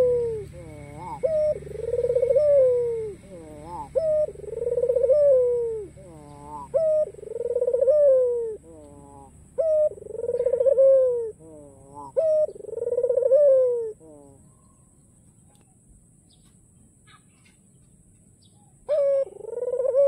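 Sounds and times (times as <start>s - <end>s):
dove cooing: 0.0s - 14.8s, 18.8s - 20.0s.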